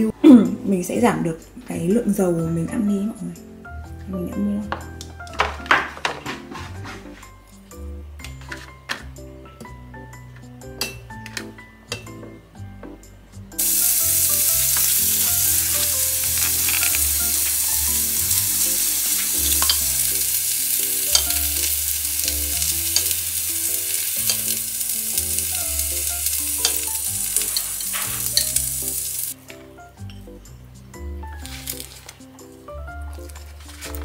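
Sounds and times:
food sizzling in a pan: 13.6s - 29.4s, 31.4s - 32.1s.

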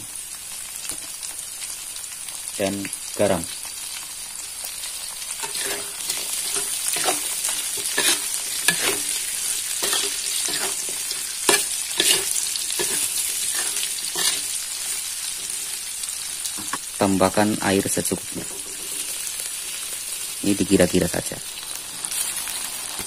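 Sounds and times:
oil sizzling in wok: 0.0s - 23.0s
spatula scraping and knocking pan: 5.4s - 15.6s, 18.3s - 19.3s.

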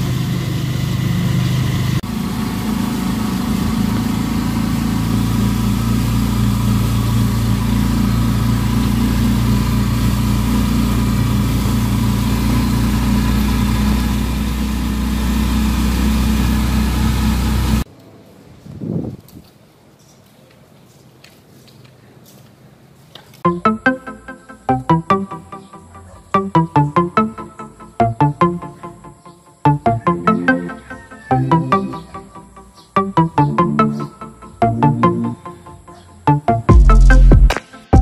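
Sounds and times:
vehicle engine running: 0.0s - 17.9s, 29.7s - 38.0s.

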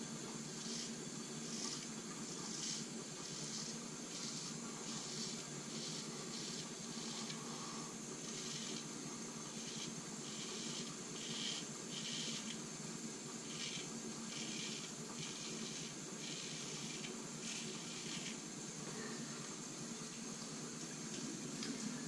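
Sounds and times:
steady low hum: 0.0s - 22.0s
razor scraping stubble: 0.5s - 12.6s, 13.4s - 18.4s.

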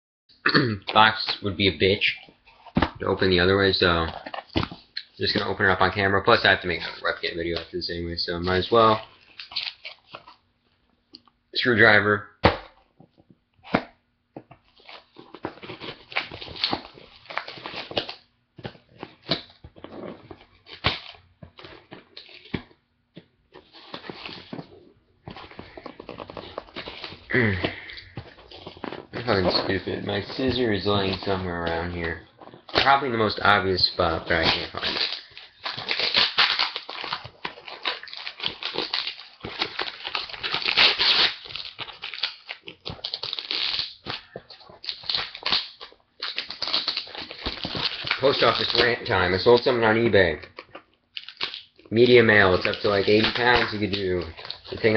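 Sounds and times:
cardboard rustling and tearing: 14.5s - 22.7s, 23.5s - 54.9s.

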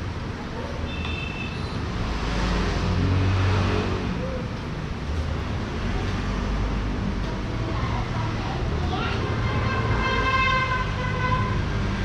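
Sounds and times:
vehicle engine passing: 1.8s - 10.0s.

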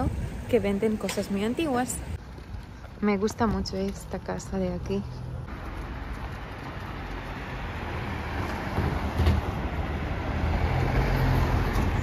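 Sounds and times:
road vehicle passing: 0.0s - 12.0s.

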